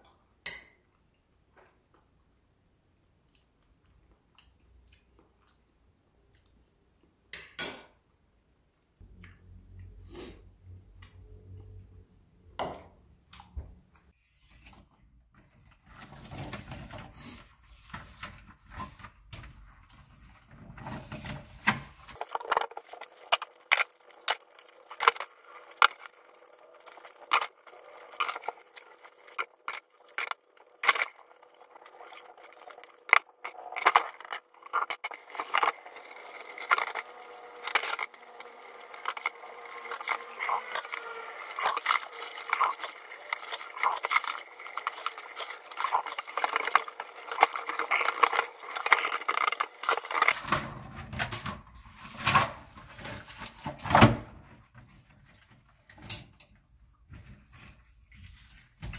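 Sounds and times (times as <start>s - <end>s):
tap water running: 22.8s - 50.4s.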